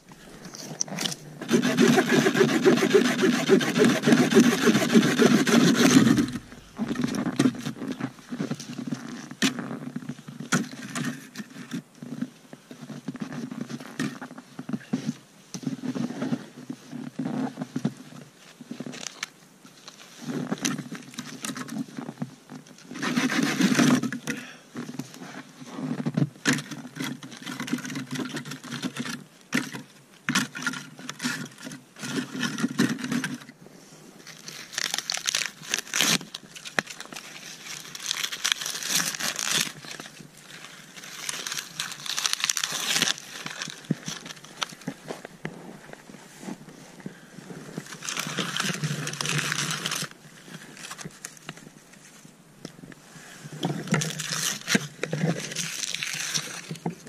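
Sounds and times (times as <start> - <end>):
bark crackling and tearing: 0.9 - 7.3, 34.2 - 45.4, 47.8 - 51.6, 53.7 - 57.0.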